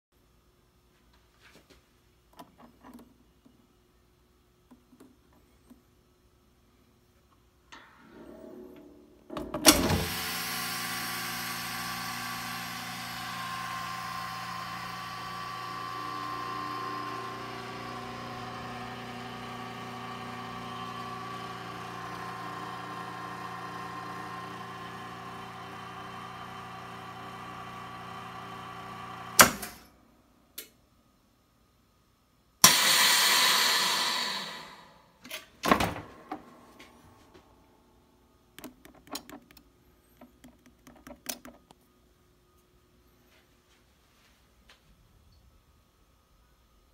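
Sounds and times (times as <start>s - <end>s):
vacuum sealer pump running: 9.6s - 29.8s, 32.6s - 35.0s.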